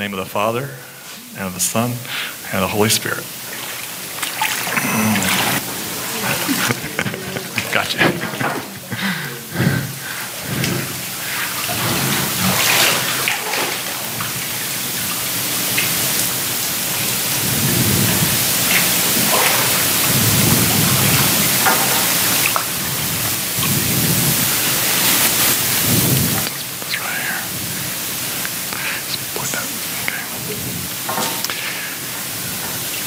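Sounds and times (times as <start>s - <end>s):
water splashing and sloshing: 3.1s - 26.9s.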